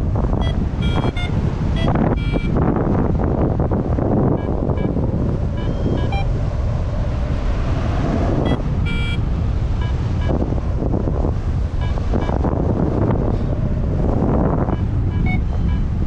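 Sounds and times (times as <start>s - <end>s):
wind buffeting microphone: 0.0s - 16.0s
short high beeps: 0.4s - 2.6s, 4.4s - 5.0s, 5.6s - 6.3s, 8.5s - 9.2s, 11.8s - 12.4s, 14.7s - 15.9s.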